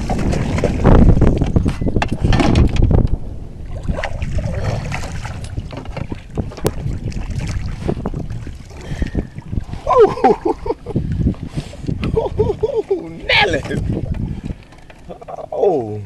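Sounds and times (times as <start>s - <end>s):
water splashing: 0.0s - 1.5s, 3.6s - 11.7s
wind buffeting microphone: 0.0s - 16.0s
person calling out: 12.8s - 13.7s.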